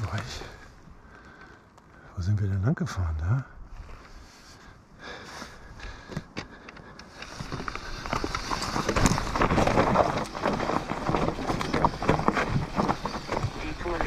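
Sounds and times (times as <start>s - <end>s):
stones crunching and clattering: 6.1s - 14.0s.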